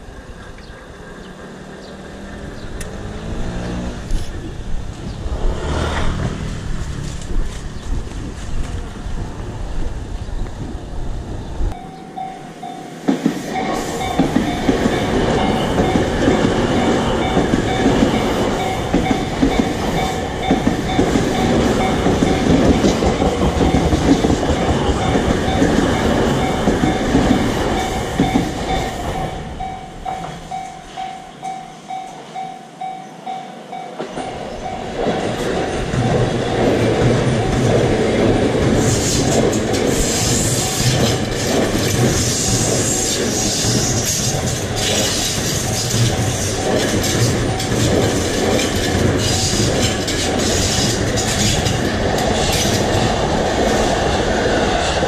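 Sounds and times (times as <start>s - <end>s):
train rumbling past: 0.0s - 55.0s
wheels clacking over rail joints: 11.7s - 32.2s, 33.9s - 55.0s
crossing warning bell ringing: 11.7s - 42.7s, 44.4s - 53.3s.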